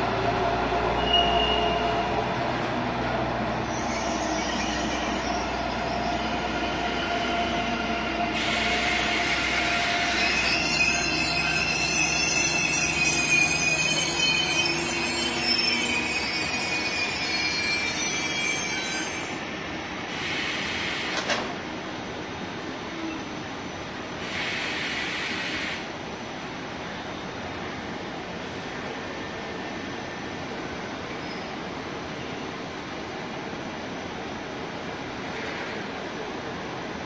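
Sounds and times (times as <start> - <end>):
freight train rolling: 0.0 - 37.0
train wheels squealing: 0.9 - 2.4, 3.6 - 21.2, 22.9 - 25.8, 31.1 - 32.5.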